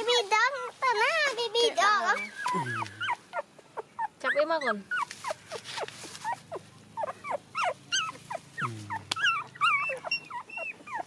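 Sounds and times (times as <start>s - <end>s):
puppies whimpering and squealing: 0.4s - 11.0s
puppy low grunt: 2.4s - 3.2s, 8.6s - 10.0s.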